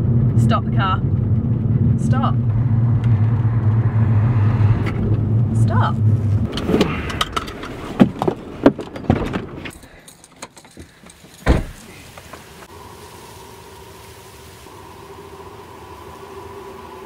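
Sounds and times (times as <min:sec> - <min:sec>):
car doors clicking and knocking: 0:06.5 - 0:09.8, 0:10.4 - 0:11.8
car door slamming shut: 0:11.4 - 0:12.0
faint steady hum: 0:11.9 - 0:17.0.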